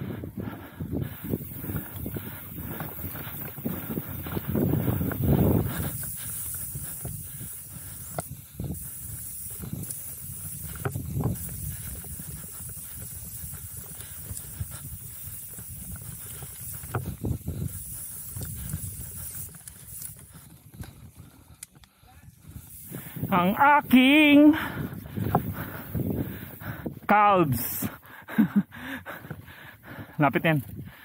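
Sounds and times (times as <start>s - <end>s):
bike tyres rolling on dirt: 0.0s - 31.0s
air rushing over microphone: 0.8s - 20.4s
small knocks and clicks from bike: 5.9s - 22.9s.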